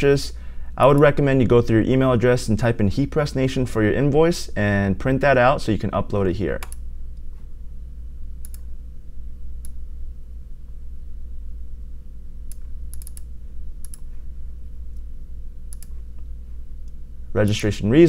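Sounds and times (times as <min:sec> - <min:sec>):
low electrical hum: 0:00.0 - 0:18.0
computer mouse clicking: 0:08.4 - 0:08.7, 0:12.5 - 0:14.2, 0:15.7 - 0:16.0.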